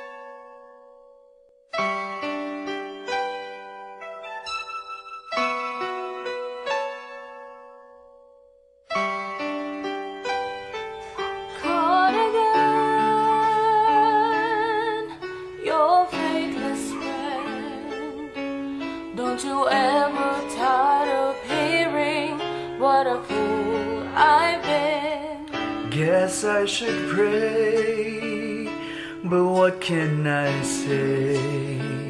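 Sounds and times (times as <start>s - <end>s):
soft instrumental accompaniment: 0.0s - 32.0s
women singing in unison: 11.6s - 18.2s, 19.2s - 25.4s.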